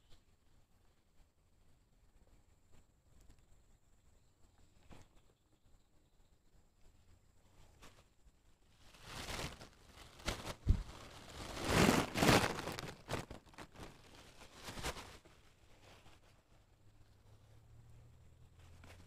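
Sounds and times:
plastic bag and clothing rustling: 7.6s - 17.4s.

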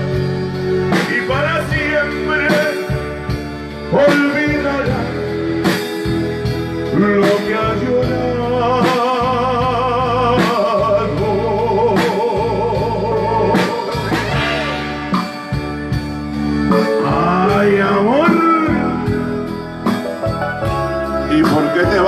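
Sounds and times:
drums: 0.0s - 22.0s
electronic keyboard: 0.0s - 22.0s
man singing into a microphone: 0.8s - 5.4s, 6.8s - 15.0s, 16.8s - 19.4s.

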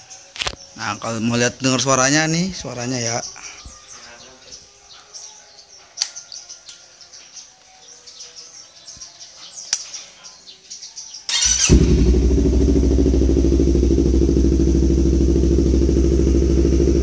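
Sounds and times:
birds chirping: 0.0s - 17.0s
motorcycle engine idling: 11.3s - 17.0s
starter motor whir: 11.3s - 17.0s.

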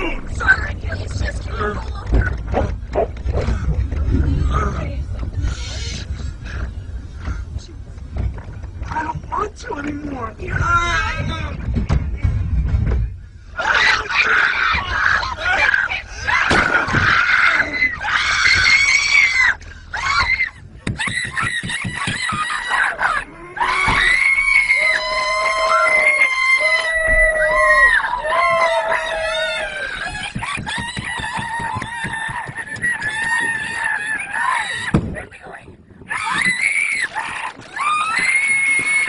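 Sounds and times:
people screaming in panic: 13.6s - 35.1s, 36.1s - 39.0s.

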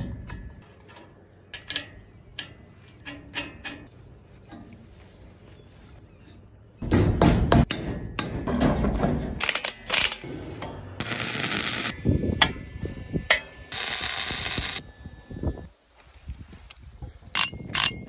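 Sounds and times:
metal clanking on metal: 0.0s - 3.9s, 6.8s - 10.8s.

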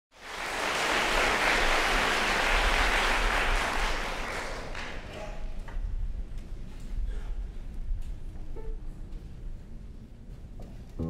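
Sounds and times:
audience applauding: 0.1s - 5.5s.

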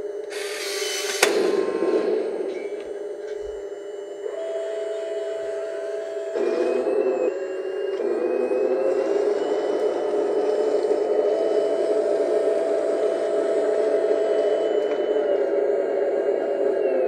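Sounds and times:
electric motors whining: 0.0s - 17.0s
steady engine-like hum: 0.0s - 17.0s.

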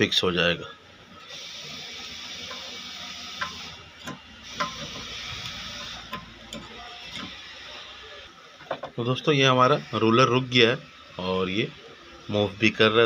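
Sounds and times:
steady hiss: 0.0s - 13.0s
screwdriver metal clicks: 5.8s - 7.4s.

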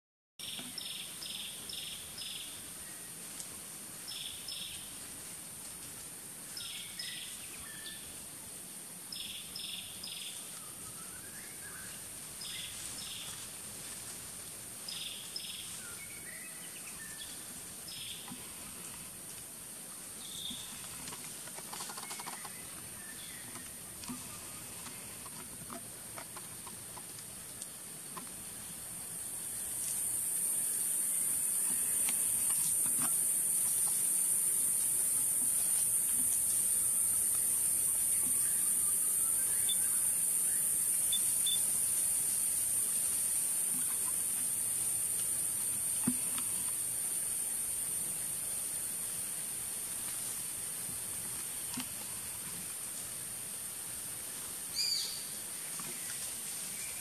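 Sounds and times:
forest insects droning: 0.4s - 57.0s
faint chirps: 28.6s - 48.2s.

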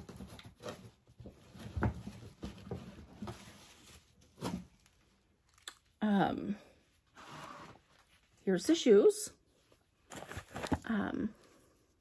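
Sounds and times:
shoes handled in box: 10.1s - 10.9s.

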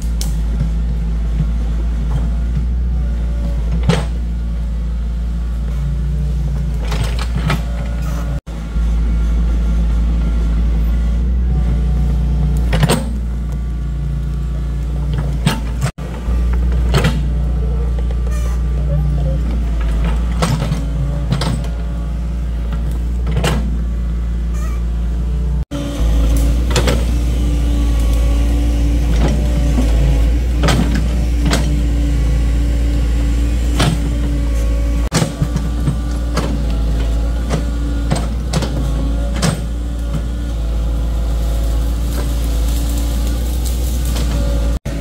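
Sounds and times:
diesel engine running under load: 0.0s - 45.0s.

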